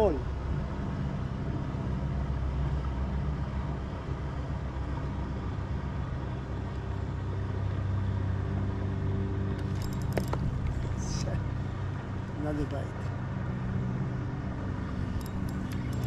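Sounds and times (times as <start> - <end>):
low motor hum: 0.0 - 16.0.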